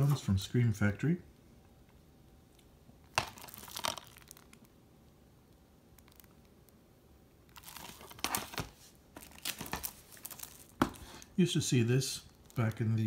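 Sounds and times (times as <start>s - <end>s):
plastic shrink-wrap crinkling: 3.0s - 4.7s, 6.0s - 6.5s, 7.5s - 11.3s.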